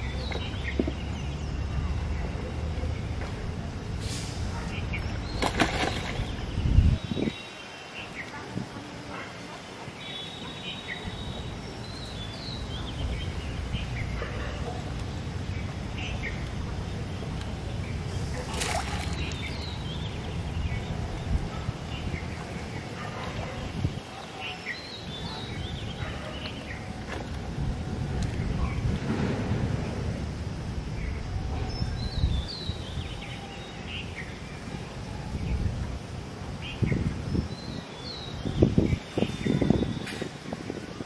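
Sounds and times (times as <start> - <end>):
outdoor background noise: 0.0 - 41.0
brief water splash: 5.4 - 6.4, 18.4 - 19.4.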